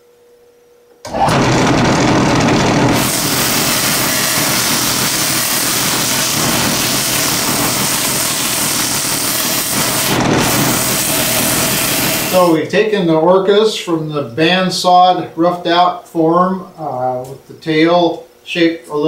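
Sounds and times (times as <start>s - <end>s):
sander running: 1.1s - 12.6s
sander hissing on wood: 1.2s - 12.6s.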